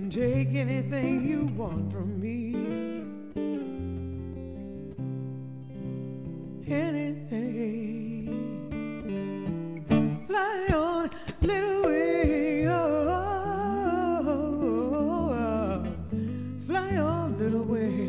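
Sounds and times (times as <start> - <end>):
wavering lead melody: 11.5 - 18.0.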